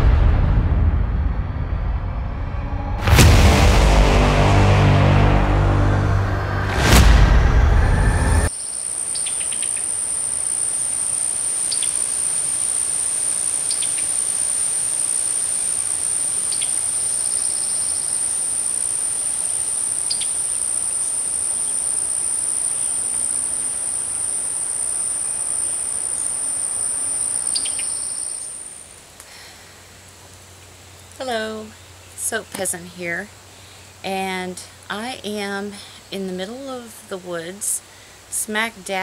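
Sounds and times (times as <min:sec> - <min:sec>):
high-pitched insect chorus: 0:08.0 - 0:29.0.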